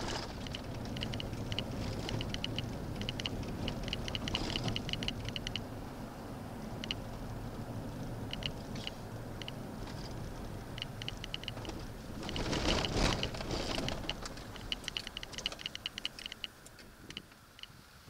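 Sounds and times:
vehicle road noise: 0.0s - 18.0s
quick light ticking: 0.4s - 5.7s, 8.3s - 9.6s, 10.7s - 17.8s.

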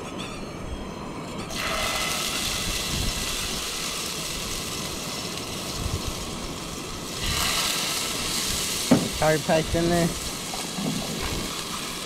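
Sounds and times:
curry paste sizzling in a pot: 1.5s - 9.3s.

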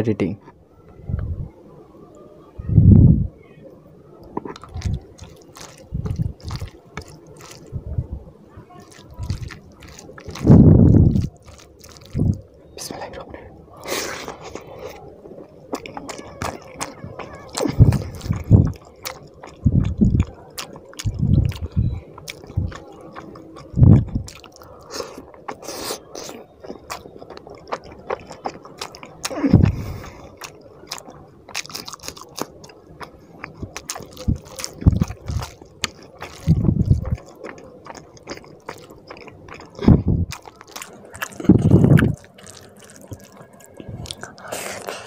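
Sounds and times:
dull low thumps: 2.6s - 3.4s, 5.9s - 6.7s, 10.4s - 11.3s, 12.1s - 12.4s, 17.6s - 18.8s, 19.5s - 20.2s, 21.0s - 22.8s, 23.7s - 24.3s, 29.5s - 29.9s, 36.4s - 37.2s, 39.8s - 40.4s, 41.4s - 42.2s
wet chewing and lip smacking: 4.1s - 8.1s, 8.8s - 45.0s.

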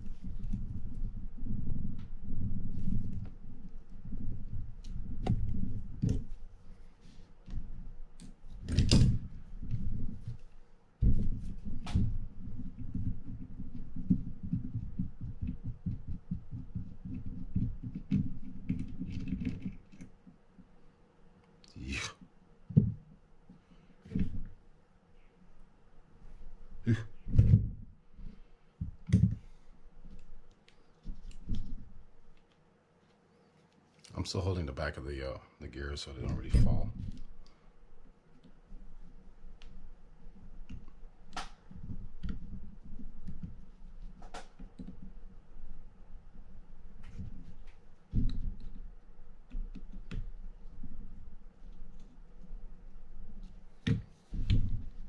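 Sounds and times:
hands rubbing and shuffling: 0.0s - 20.8s, 25.2s - 34.6s, 36.2s - 55.0s
rustling: 0.0s - 20.9s, 21.7s - 34.4s.

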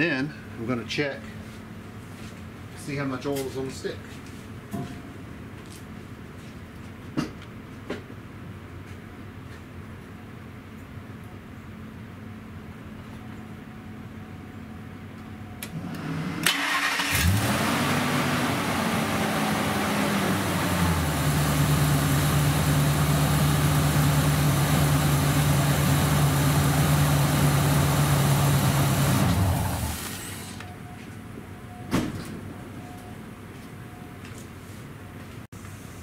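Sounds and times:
engine cranking and starting: 15.6s - 18.4s, 28.8s - 30.6s
engine idling: 16.5s - 30.7s.

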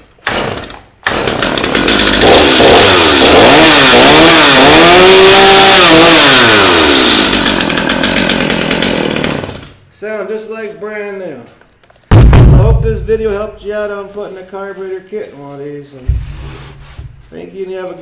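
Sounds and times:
chainsaw engine revving: 0.2s - 9.8s
chainsaw pull-start: 0.2s - 9.8s.

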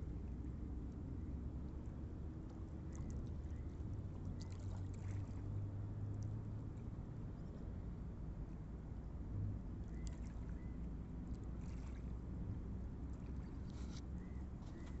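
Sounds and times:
wind: 0.0s - 15.0s
water rumbling: 1.5s - 7.6s, 9.6s - 15.0s.

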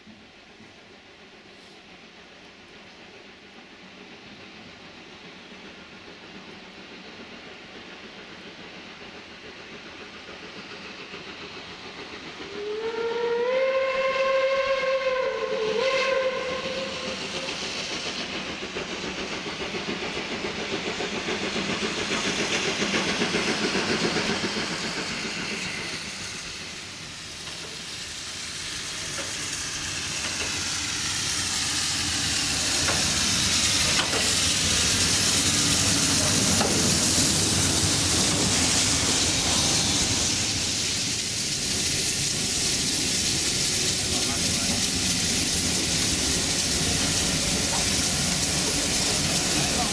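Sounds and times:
steam train hissing and running: 0.0s - 49.9s
steam locomotive whistle: 12.5s - 17.4s.

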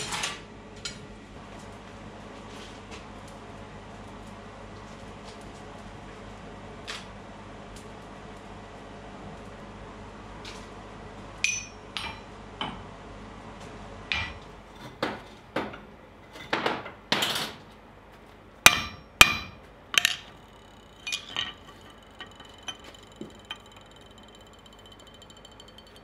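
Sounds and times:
hammer striking steel: 18.7s - 26.0s
high metallic ring: 18.7s - 26.0s.

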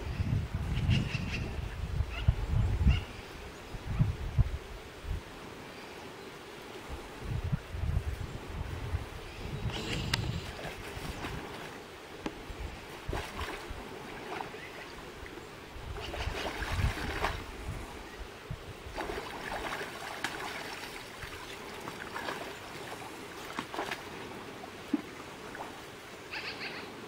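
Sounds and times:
river water flowing: 4.8s - 7.2s, 8.4s - 27.0s
bear splashing in water: 13.0s - 14.9s, 15.9s - 17.6s, 18.8s - 25.8s.

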